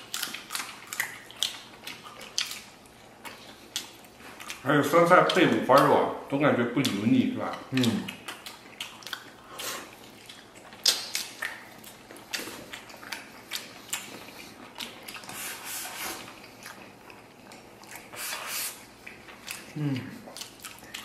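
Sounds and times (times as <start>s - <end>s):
people chewing and slurping: 0.0s - 5.9s, 6.8s - 21.0s
mouth smacks and clicks: 7.6s - 14.2s.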